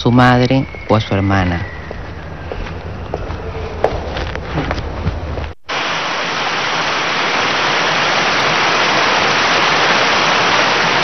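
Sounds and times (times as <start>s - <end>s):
floodwater rushing: 5.7s - 11.0s.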